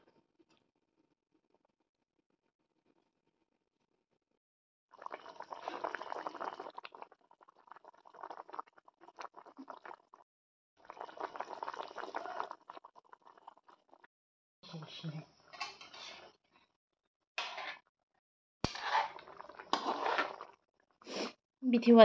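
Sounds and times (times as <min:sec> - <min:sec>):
curry bubbling and spluttering: 0:04.9 - 0:10.2, 0:10.8 - 0:14.1, 0:18.7 - 0:21.0.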